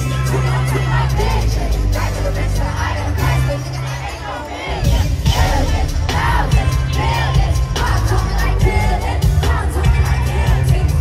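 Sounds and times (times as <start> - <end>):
bass-heavy pop music: 0.0 - 11.0
crowd noise: 0.0 - 11.0
drum beat: 4.7 - 11.0.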